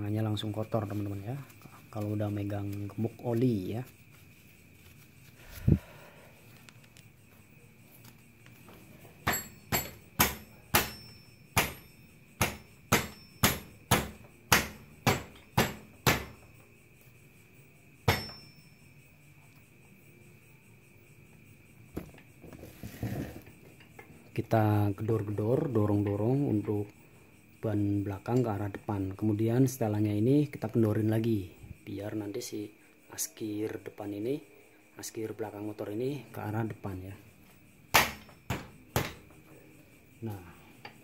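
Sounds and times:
sharp knocks on motorcycle wheel: 9.2 - 16.4, 18.1 - 18.5, 37.9 - 39.3.

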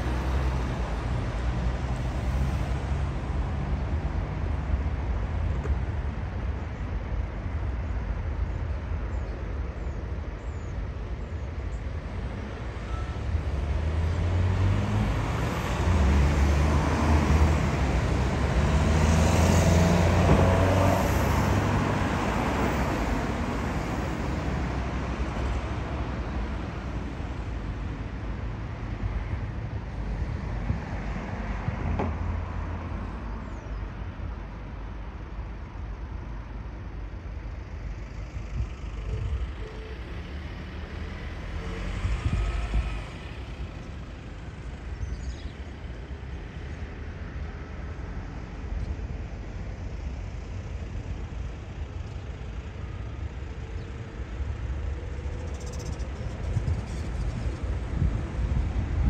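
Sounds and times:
wind buffeting microphone: 55.6 - 59.0.

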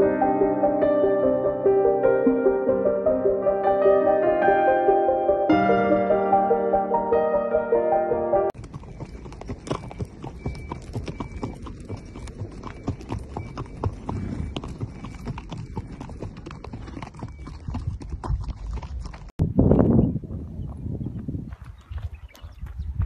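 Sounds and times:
horse hooves on dirt track: 8.5 - 23.0.

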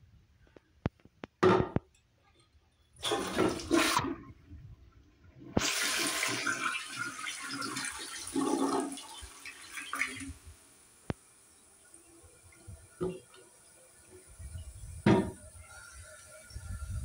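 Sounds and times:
toilet flush click: 3.0 - 4.2, 5.5 - 10.3
water rushing down toilet bowl: 3.0 - 4.4, 5.5 - 10.7.

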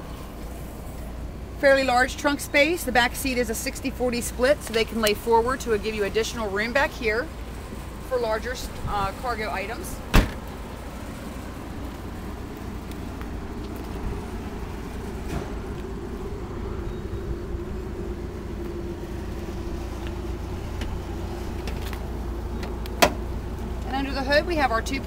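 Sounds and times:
low rumble: 5.8 - 24.8
car trunk lid slamming shut: 10.1 - 10.5, 23.0 - 23.2.

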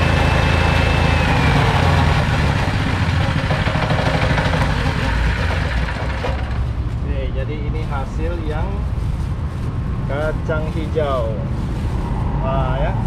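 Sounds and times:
flour mill grinding grain: 0.0 - 6.6
petrol engine running: 0.0 - 6.8.

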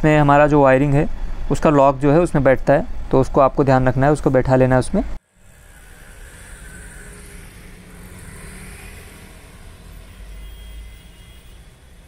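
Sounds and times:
low rumble of vehicles: 5.0 - 12.0.

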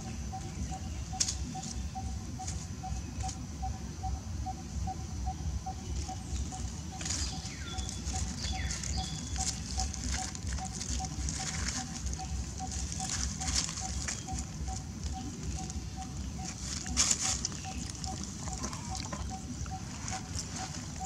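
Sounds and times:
high-pitched hum: 0.0 - 21.0
steady low rumble: 0.0 - 21.0
dry leaves crackling and rustling: 5.9 - 21.0.

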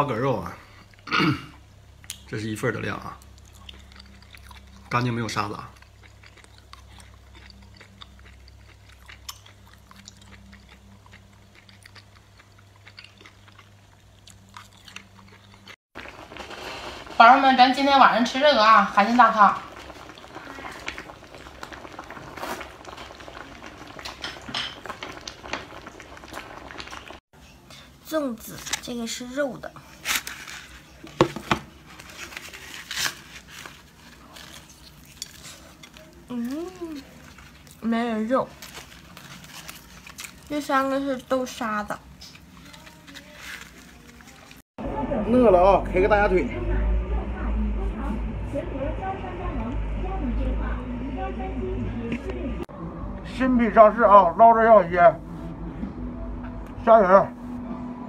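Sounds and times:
man chewing with mouth smacks: 3.2 - 4.9, 5.8 - 15.8
leaf wrapping rustling and crinkling: 16.0 - 27.2, 29.8 - 44.6
steady low hum: 44.8 - 58.0.

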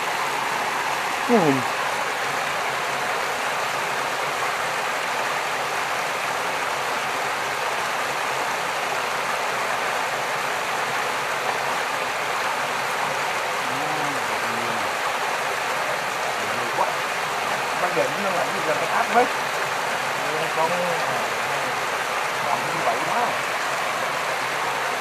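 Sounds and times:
stream water flowing: 0.0 - 25.0
faint voice: 1.3 - 1.8, 13.6 - 14.9, 16.4 - 19.3, 20.2 - 23.4.

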